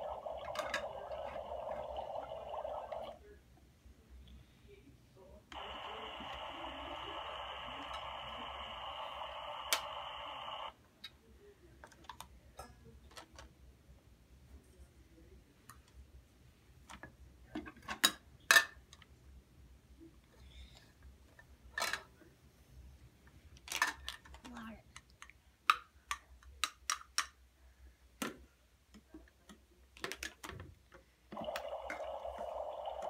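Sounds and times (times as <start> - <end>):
toy stove electronic hiss: 0.0 - 3.2, 5.5 - 10.7, 31.4 - 33.0.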